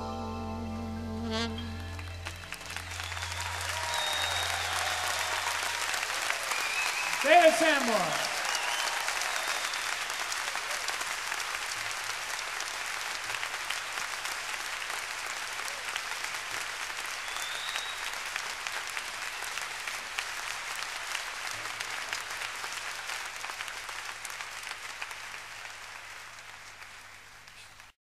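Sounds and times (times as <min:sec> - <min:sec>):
audience applauding: 0:01.6 - 0:27.9.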